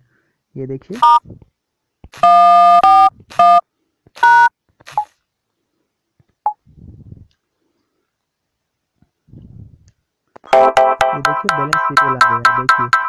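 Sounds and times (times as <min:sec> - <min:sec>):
phone keypad two-tone beeps: 0:01.0 - 0:01.2.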